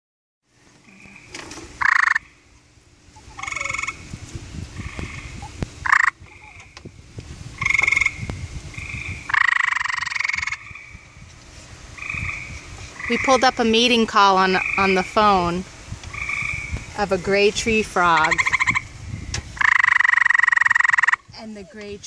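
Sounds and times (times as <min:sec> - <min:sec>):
treefrog trills: 0:00.8 - 0:02.5, 0:03.1 - 0:04.1, 0:04.8 - 0:06.8, 0:07.6 - 0:11.1, 0:12.0 - 0:13.6, 0:14.4 - 0:15.4, 0:16.1 - 0:16.8, 0:18.2 - 0:18.9, 0:19.6 - 0:21.4.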